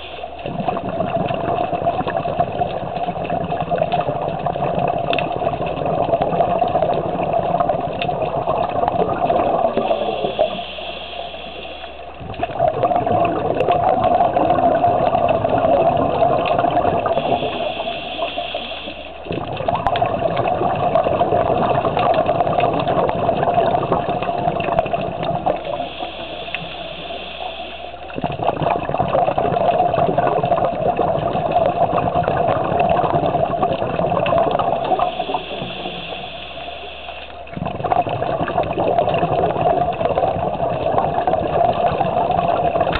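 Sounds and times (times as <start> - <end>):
regulator inhale hiss: 0.0 - 0.4, 9.7 - 12.2, 17.1 - 19.3, 25.6 - 28.2, 34.8 - 37.5
exhaled bubbles gurgling: 0.0 - 42.9.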